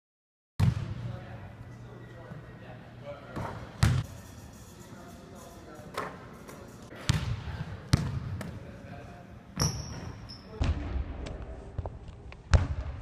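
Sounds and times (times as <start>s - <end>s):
basketball bouncing on gym floor: 0.6s - 1.0s, 3.4s - 4.1s, 7.1s - 8.6s.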